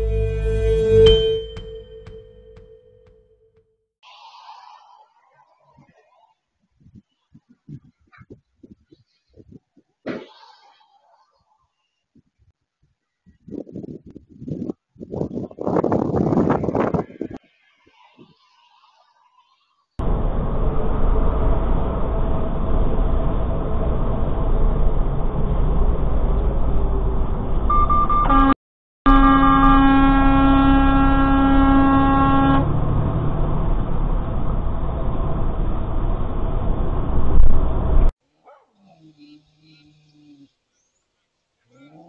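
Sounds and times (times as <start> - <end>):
loud bump: 0.0 - 3.1
truck horn steady tone: 0.0 - 3.6, 27.7 - 33.2
truck road and engine rumble: 20.0 - 38.1.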